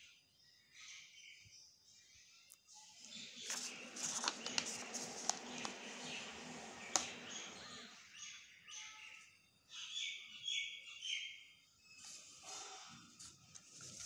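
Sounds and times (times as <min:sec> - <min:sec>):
paper rustling and crinkling: 0:03.4 - 0:07.1, 0:13.2 - 0:14.0
bird chirps: 0:05.5 - 0:12.4.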